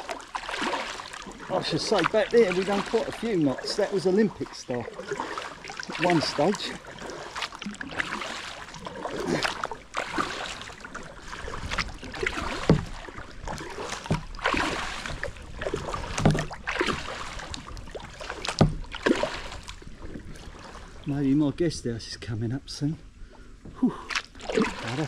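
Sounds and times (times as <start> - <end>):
kayak paddle splashing: 0.0 - 21.3, 23.1 - 25.0
paddle knocks: 11.3 - 19.7.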